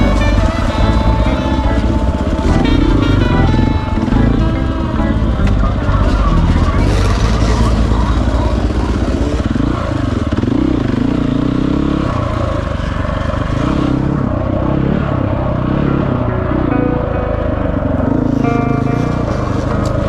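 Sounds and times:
dirt bike engine revving: 0:00.0 - 0:20.0.

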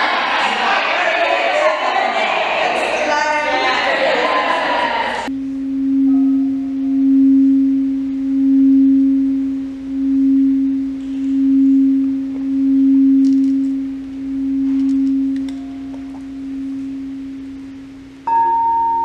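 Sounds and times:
crystal singing bowl tone: 0:05.3 - 0:17.4, 0:18.2 - 0:19.0.

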